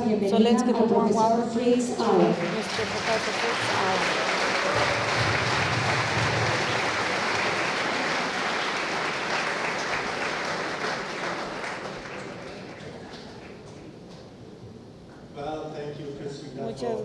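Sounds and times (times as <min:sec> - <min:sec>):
audience applauding: 0:02.0 - 0:14.0.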